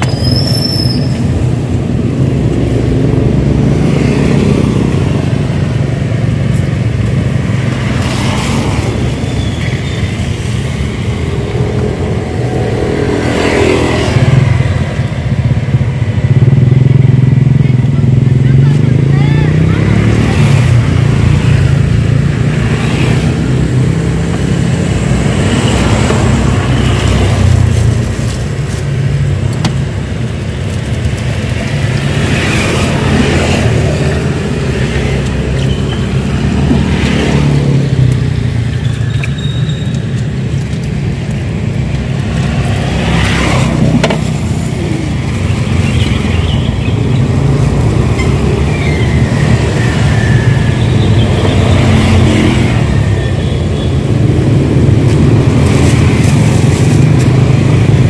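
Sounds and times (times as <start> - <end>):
vehicles passing on wet road: 0.0 - 58.0.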